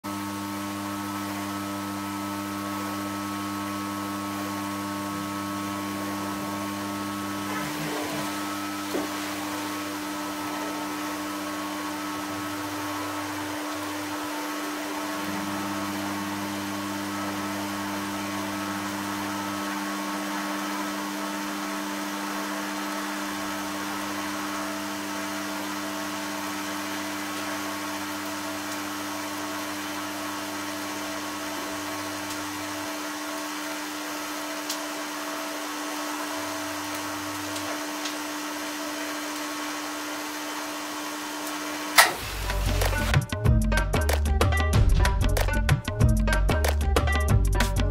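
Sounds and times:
transformer humming: 6.0 - 24.6, 42.0 - 47.9.

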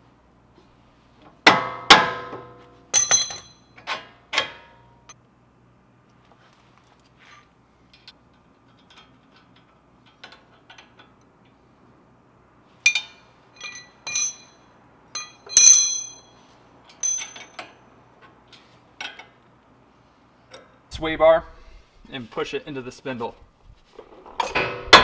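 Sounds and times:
metal parts clinking: 3.0 - 3.9, 8.7 - 11.1, 12.9 - 17.8.

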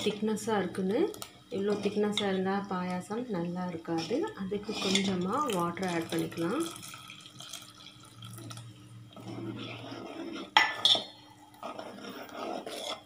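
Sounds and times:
ladle stirring: 0.0 - 13.0
water pouring into pot: 5.3 - 9.4
ladle clinking on pot: 10.6 - 11.1.

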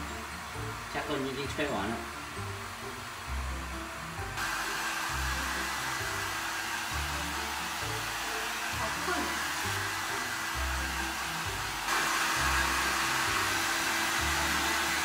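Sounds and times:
hair dryer blowing: 0.0 - 15.0.

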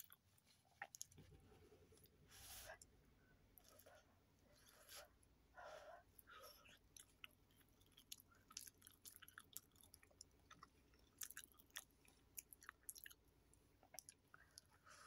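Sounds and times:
wet chewing mouth clicks: 6.6 - 13.2.

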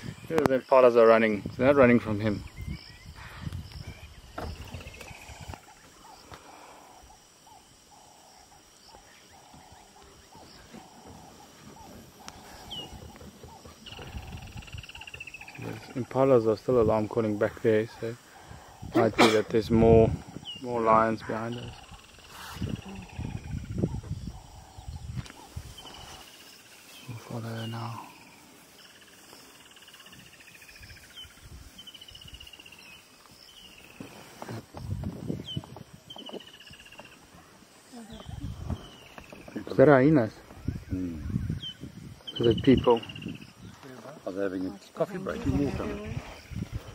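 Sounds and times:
insects trilling: 0.0 - 46.9
distant impala alarm calls: 2.5 - 16.5, 20.4 - 34.6, 35.4 - 39.8
crackling rustle: 25.1 - 40.6.

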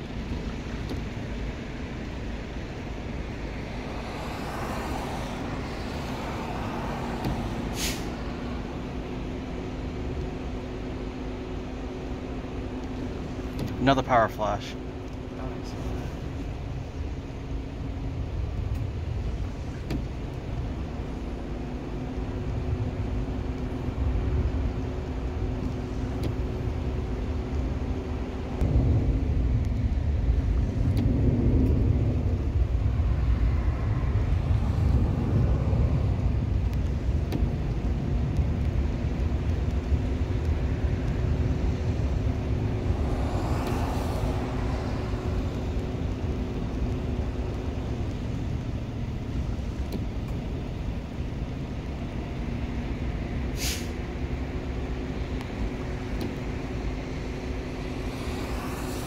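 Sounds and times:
constant hum: 0.0 - 59.0
low outdoor rumble: 0.0 - 59.0
car driving past: 3.5 - 9.0, 40.7 - 47.2, 57.0 - 59.0.

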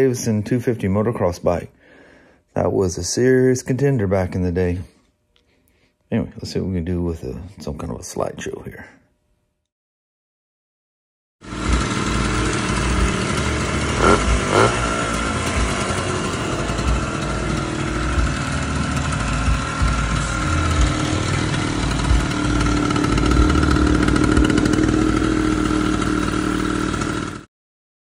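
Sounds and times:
two-stroke minibike engine running: 11.4 - 27.5
sharp engine blips: 11.5 - 27.2.

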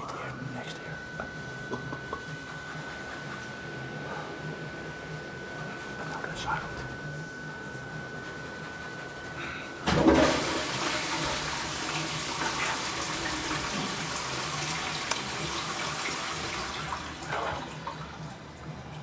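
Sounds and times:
toilet flushing: 9.8 - 18.9.

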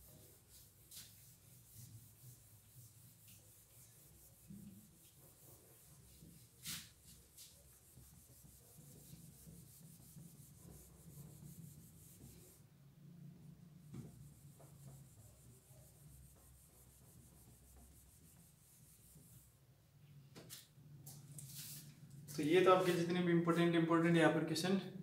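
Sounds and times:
light rubbing noise: 0.0 - 12.6, 20.5 - 23.3.

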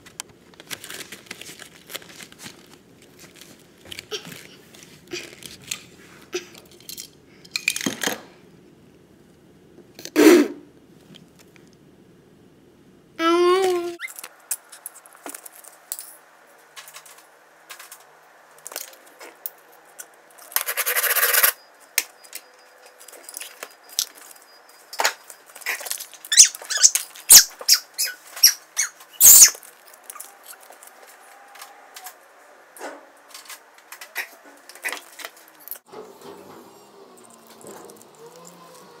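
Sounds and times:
toy cars rattling: 14.0 - 21.6, 37.0 - 39.0
toy cars clicking and knocking: 16.8 - 32.2.

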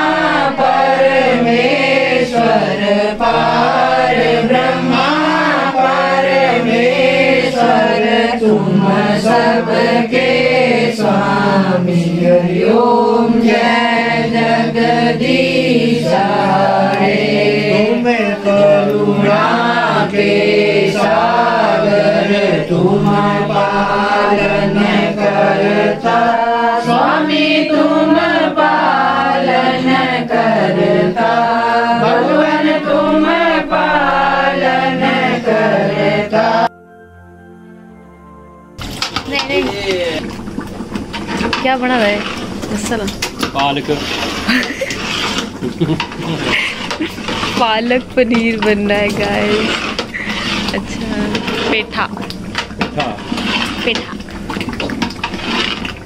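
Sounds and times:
steady low drone tone: 0.0 - 29.0, 31.9 - 43.2
group of voices singing: 0.0 - 36.7.

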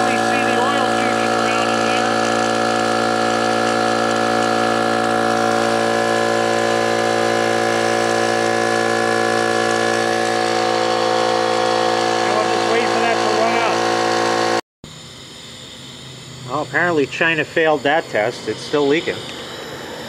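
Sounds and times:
air compressor running: 0.0 - 20.0.

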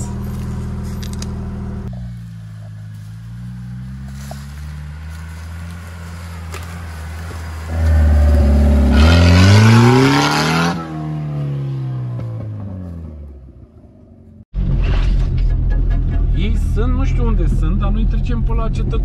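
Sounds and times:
off-road vehicle driving past: 0.0 - 19.0.

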